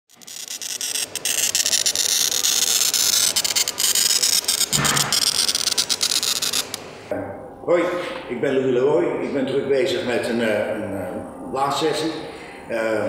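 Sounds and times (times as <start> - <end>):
tool scraping across glass: 0.1 - 6.9.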